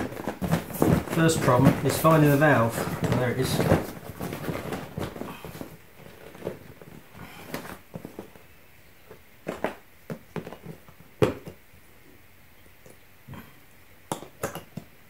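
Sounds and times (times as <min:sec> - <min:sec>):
hands rustling on inflatable fabric: 0:00.0 - 0:08.4.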